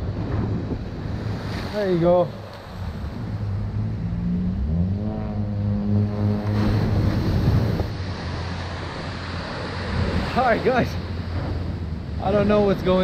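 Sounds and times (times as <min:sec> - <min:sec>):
surf washing onto beach: 0:00.0 - 0:03.6, 0:06.2 - 0:13.0
wind buffeting microphone: 0:00.0 - 0:13.0
steady low hum: 0:02.4 - 0:10.3.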